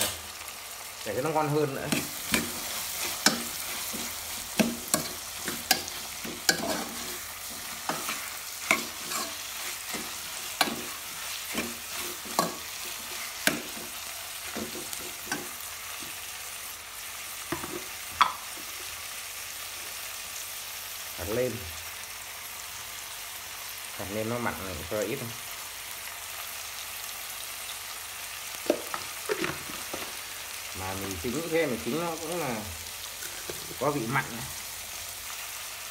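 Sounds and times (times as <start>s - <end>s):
food sizzling in a pot: 0.0s - 35.9s
metal spatula scraping a pot: 1.9s - 15.6s.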